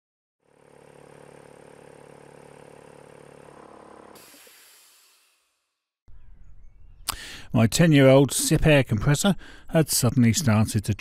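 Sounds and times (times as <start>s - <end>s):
mechanical hum with flutter: 0.4s - 5.8s
hiss: 4.2s - 5.5s.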